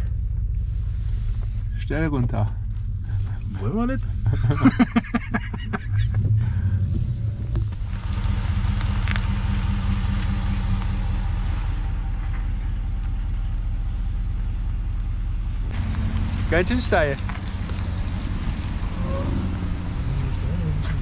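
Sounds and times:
engine and tyre rumble: 0.0s - 21.0s.

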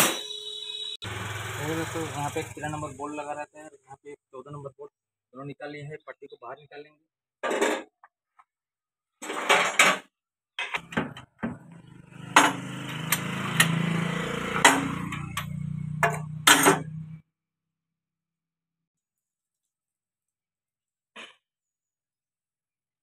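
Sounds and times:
low hum and rasping: 11.5s - 17.2s
sharp metal knocks: 12.3s - 13.8s, 14.6s - 17.0s.

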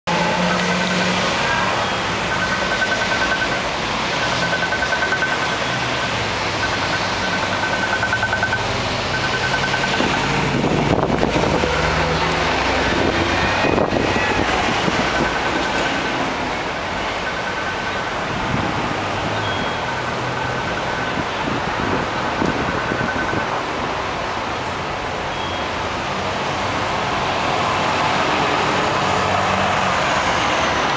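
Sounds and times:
city street traffic: 0.0s - 30.9s
heavy vehicle passing: 0.1s - 22.6s
high electronic beeping: 0.4s - 12.2s, 14.9s - 18.4s, 19.3s - 21.4s, 22.1s - 23.6s.

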